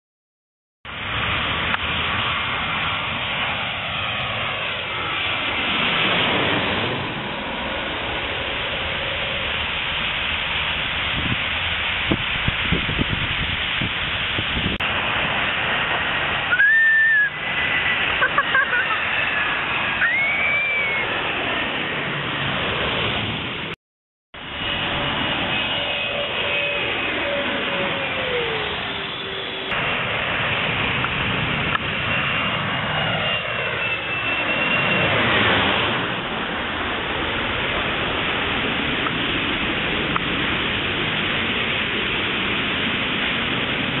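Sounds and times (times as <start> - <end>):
jet engine whine passing overhead: 0.9 - 23.8, 24.4 - 44.0
steady rushing hiss: 4.9 - 20.1.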